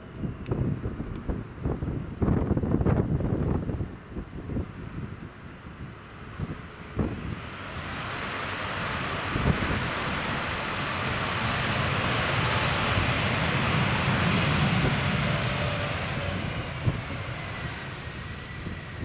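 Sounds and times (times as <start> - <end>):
low gusty wind rumble: 0.0 - 19.0
jet engines rushing: 0.1 - 19.0
faint high whine: 6.6 - 19.0.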